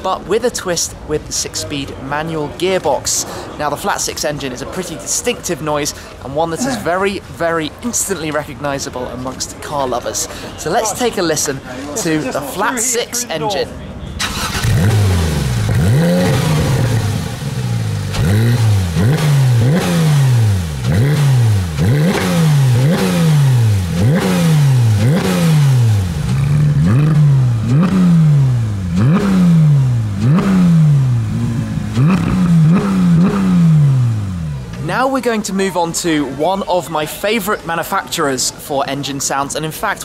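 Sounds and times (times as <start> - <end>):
car engine revving: 14.2 - 34.8.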